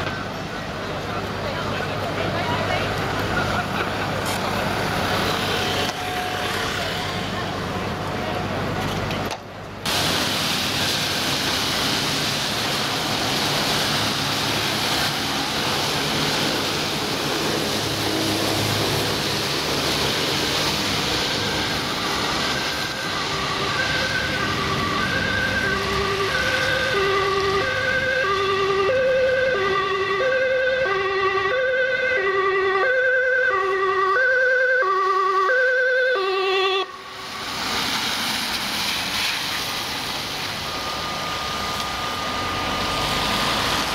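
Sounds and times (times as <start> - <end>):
traffic noise: 0.0 - 43.9
ambulance two-tone siren: 18.0 - 37.5, 40.3 - 43.9.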